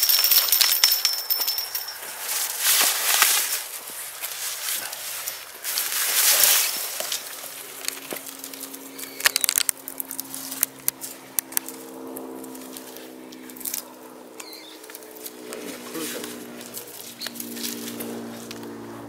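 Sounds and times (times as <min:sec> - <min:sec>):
loud rustle: 0:00.0 - 0:11.9
plastic tape crinkling: 0:02.2 - 0:11.9.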